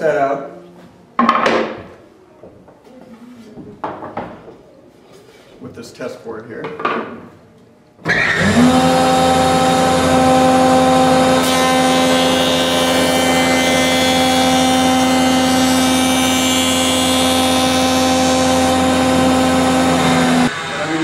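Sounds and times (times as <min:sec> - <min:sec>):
jointer motor whining: 0:08.0 - 0:21.0
board fed across jointer knives: 0:08.1 - 0:21.0.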